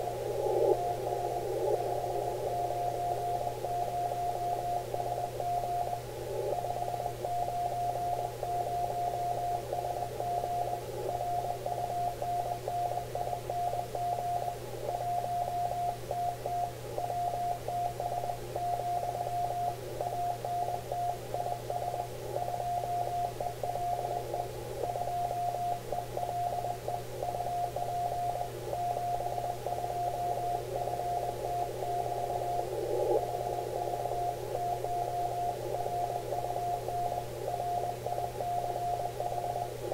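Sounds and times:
radio band hiss: 0.0 - 3.7, 30.6 - 38.5
steady low hum: 0.0 - 39.9.

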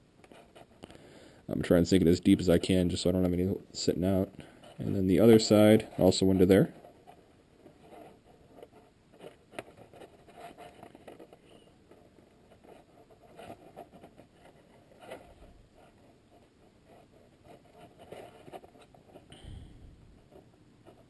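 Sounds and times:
wires rustling and clicking: 4.4 - 19.4.

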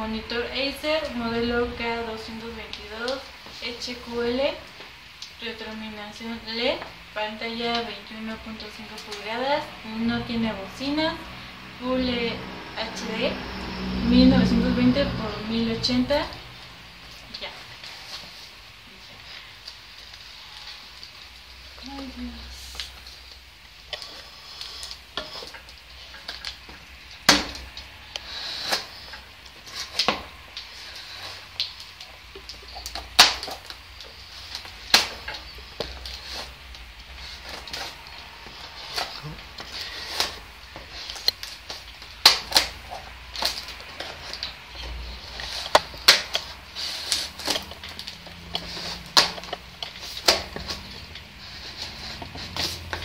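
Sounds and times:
tape rubbing on cardboard: 50.0 - 53.0.

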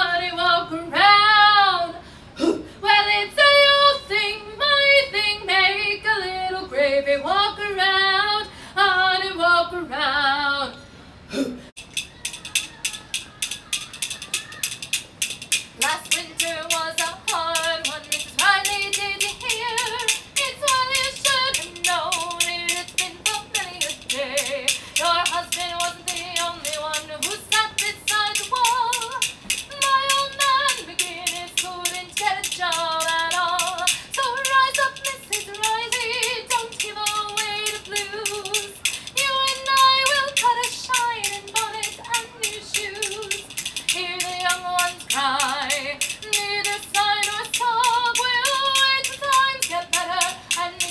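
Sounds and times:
woman singing: 0.0 - 2.0, 2.8 - 10.8, 12.6 - 50.9
bones clacking rhythm: 11.8 - 50.9.

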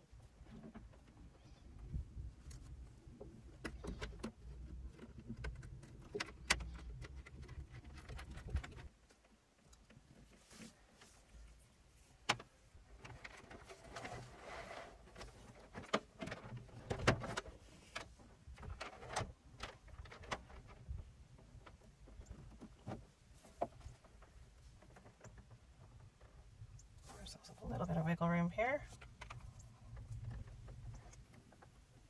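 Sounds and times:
hands handling wires and connectors: 0.3 - 14.3.

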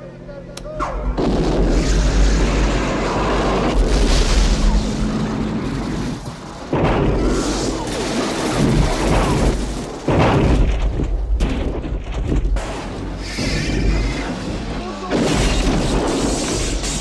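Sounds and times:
rocket booster blast: 0.8 - 11.0.

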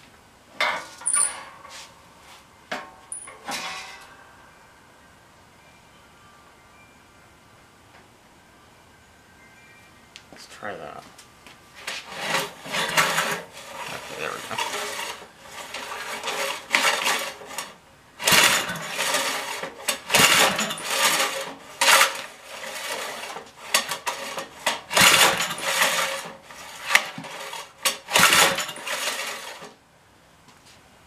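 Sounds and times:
pull-starter rope whirring: 11.8 - 29.8.

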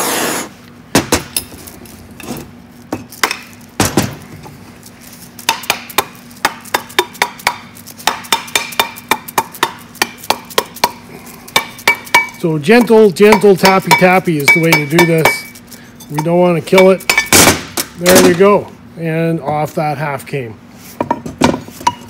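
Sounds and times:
rubber mallet tapping metal: 5.5 - 11.0, 11.6 - 15.5.

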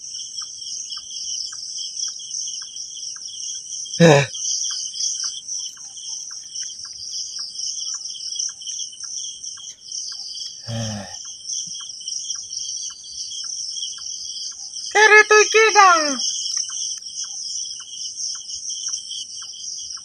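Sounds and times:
faint regular ticks: 0.0 - 3.6, 4.5 - 10.6, 11.2 - 14.8, 16.2 - 20.0
crickets trilling: 0.1 - 20.0.

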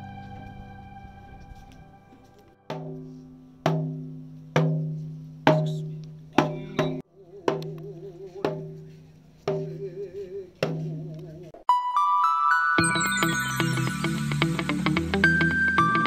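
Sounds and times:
hand-held fan drum strikes: 2.7 - 9.8, 10.6 - 11.2.

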